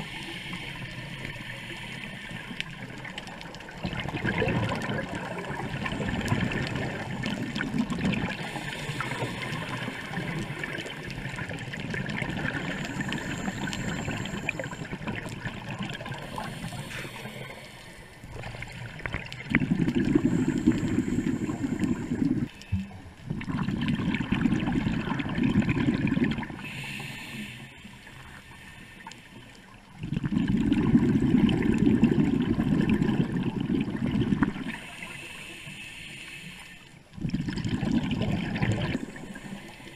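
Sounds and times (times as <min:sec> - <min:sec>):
exhaled bubbles bursting: 0:03.0 - 0:16.7, 0:18.3 - 0:26.6, 0:30.0 - 0:34.7, 0:37.2 - 0:39.2
diver breathing through regulator: 0:08.3 - 0:11.1, 0:12.4 - 0:15.1, 0:16.0 - 0:18.6, 0:19.7 - 0:22.7, 0:26.6 - 0:29.4, 0:34.6 - 0:37.0, 0:38.7 - 0:39.9.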